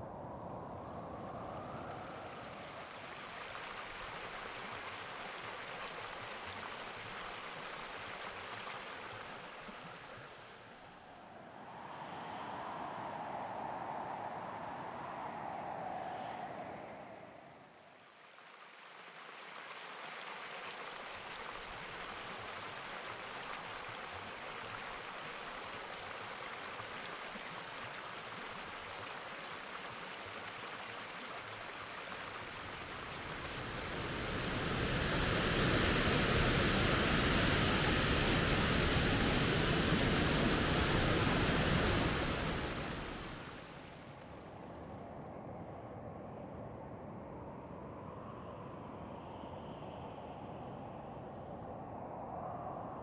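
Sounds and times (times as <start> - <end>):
waterfall and stream rushing: 1.9 - 10.8, 18.3 - 44.2.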